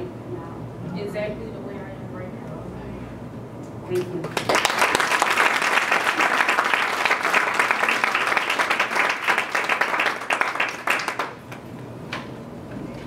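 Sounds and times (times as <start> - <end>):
group applauding: 4.0 - 11.7.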